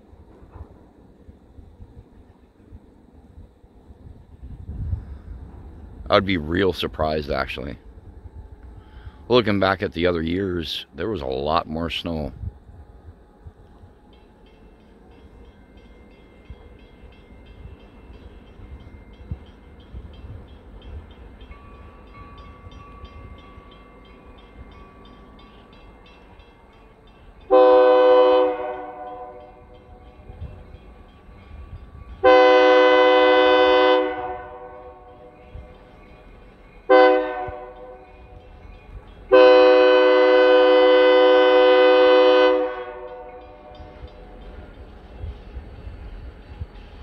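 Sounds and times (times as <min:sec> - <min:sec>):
train rumble: 0:00.0 - 0:47.0
locomotive air horn blasts: 0:27.5 - 0:29.5, 0:32.2 - 0:35.0, 0:36.9 - 0:37.9, 0:39.3 - 0:43.5.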